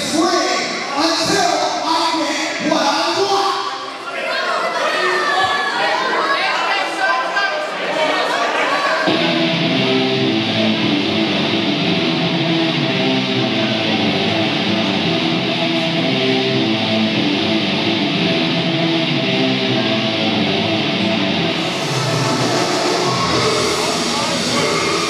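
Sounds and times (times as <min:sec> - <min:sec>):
rock music with electric guitar: 0:09.1 - 0:25.0.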